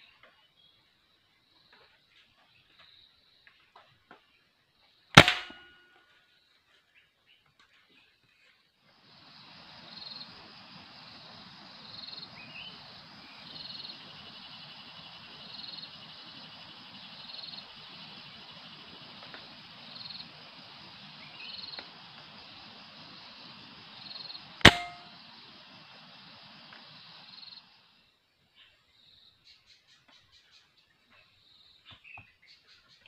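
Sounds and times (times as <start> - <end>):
faint steady background: 0.0 - 33.0
rifle shot with metallic ring: 5.2 - 5.9, 24.6 - 25.2.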